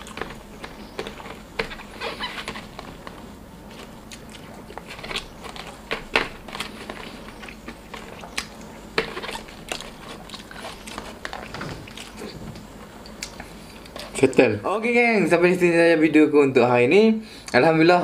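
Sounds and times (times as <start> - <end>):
eating sounds: 0.0 - 14.4.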